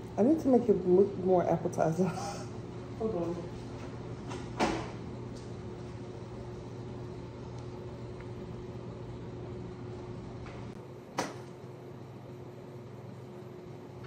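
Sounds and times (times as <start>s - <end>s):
kitchen appliance fan humming: 0.0s - 14.0s.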